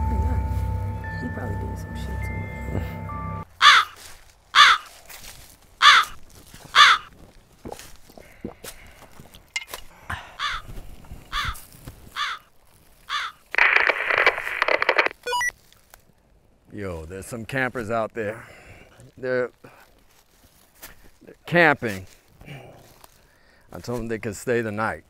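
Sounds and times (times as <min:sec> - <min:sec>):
crow cawing: 0:03.6 - 0:05.0, 0:05.8 - 0:07.1, 0:10.1 - 0:10.7, 0:11.3 - 0:12.5, 0:13.1 - 0:13.5
two-way radio static hiss: 0:13.5 - 0:15.2.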